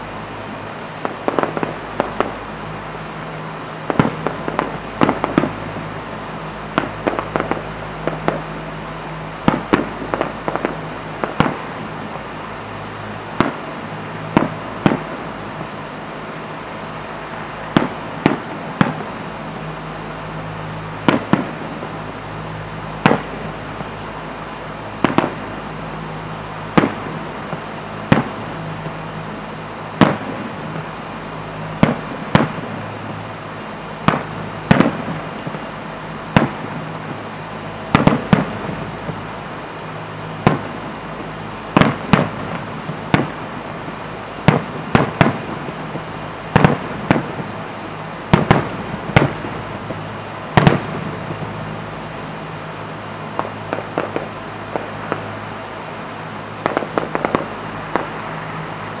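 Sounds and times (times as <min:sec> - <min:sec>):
firework shells bursting: 0:01.0 - 0:02.4, 0:03.8 - 0:05.9, 0:37.9 - 0:39.3, 0:56.6 - 0:58.4.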